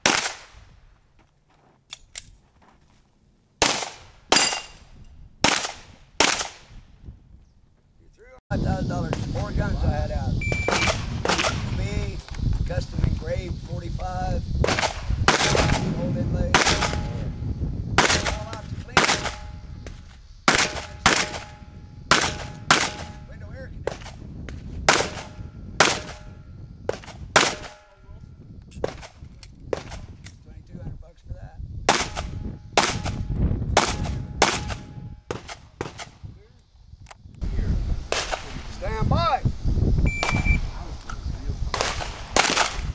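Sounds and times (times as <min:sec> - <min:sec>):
pistol shots: 0:00.0 - 0:00.6, 0:03.6 - 0:06.7, 0:10.6 - 0:11.7, 0:14.6 - 0:15.9, 0:16.5 - 0:17.2, 0:18.0 - 0:19.6, 0:20.5 - 0:23.2, 0:24.8 - 0:27.9, 0:31.9 - 0:36.1, 0:38.1 - 0:38.6, 0:41.7 - 0:42.9.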